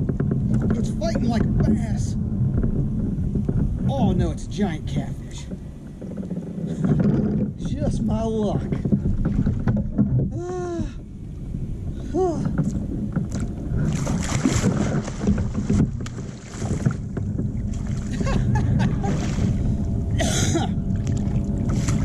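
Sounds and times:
small clicks and knocks: 0:00.0 - 0:00.9
water sloshing: 0:00.0 - 0:22.0
fish thrashing and splashing: 0:12.5 - 0:20.0.

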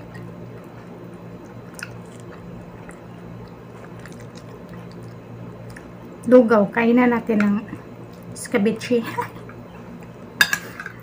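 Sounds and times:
person chewing food: 0:00.0 - 0:06.2
steady low hum: 0:00.0 - 0:11.0.

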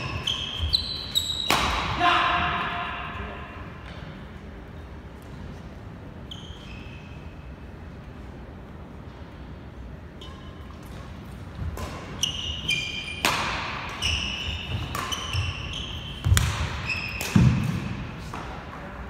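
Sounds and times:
shoe squeaks on court floor: 0:00.0 - 0:01.6, 0:06.2 - 0:07.5, 0:10.2 - 0:10.8, 0:12.0 - 0:18.1
racket striking shuttlecock: 0:01.4 - 0:02.0, 0:11.7 - 0:12.2, 0:13.1 - 0:15.6, 0:16.2 - 0:18.5.

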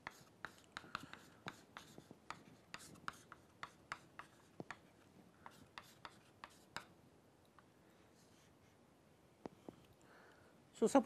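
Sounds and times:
chalk writing on a blackboard: 0:00.0 - 0:07.0, 0:08.2 - 0:08.8.

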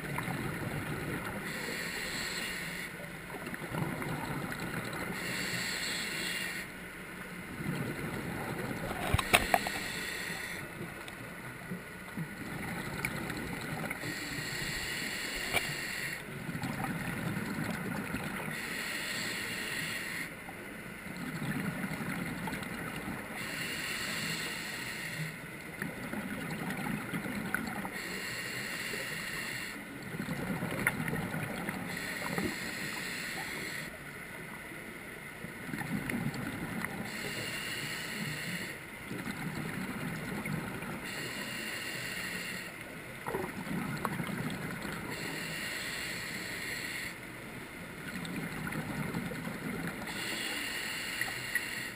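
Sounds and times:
regulator hissing inhale: 0:01.4 - 0:03.0, 0:05.1 - 0:06.7, 0:09.0 - 0:10.7, 0:14.0 - 0:16.2, 0:18.5 - 0:20.4, 0:23.4 - 0:25.4, 0:28.0 - 0:29.9, 0:31.9 - 0:34.0, 0:37.0 - 0:38.9, 0:41.0 - 0:42.8, 0:45.1 - 0:47.3, 0:50.0 - 0:51.9
exhaled bubbles rumbling: 0:03.4 - 0:05.1, 0:07.5 - 0:09.8, 0:11.6 - 0:14.0, 0:16.3 - 0:18.5, 0:25.8 - 0:28.0, 0:30.0 - 0:32.4, 0:35.7 - 0:37.1, 0:43.2 - 0:45.2, 0:48.0 - 0:50.1.

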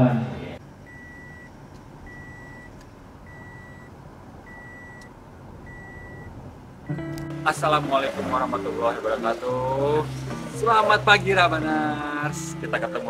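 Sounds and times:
low steady rumble: 0:00.0 - 0:12.9
electronic beeper beeping: 0:05.7 - 0:06.3.

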